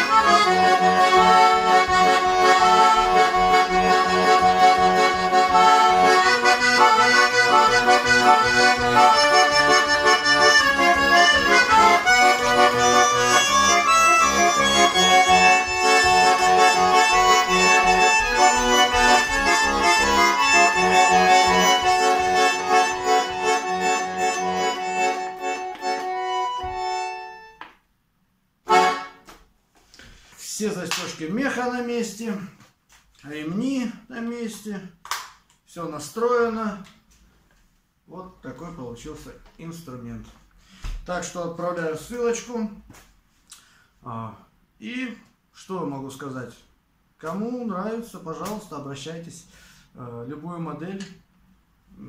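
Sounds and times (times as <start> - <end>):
button accordion playing a tune: 0.0 - 27.6, 28.7 - 29.3.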